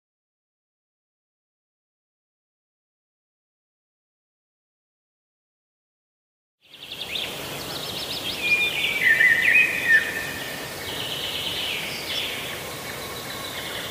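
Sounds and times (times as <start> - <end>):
birds singing and chirping: 6.6 - 13.9
outdoor hiss: 6.7 - 13.9.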